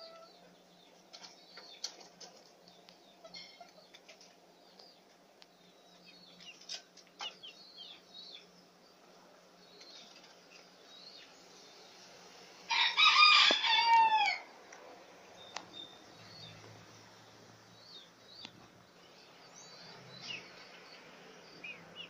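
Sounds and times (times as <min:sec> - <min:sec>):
rooster crowing: 0:12.7 - 0:14.5.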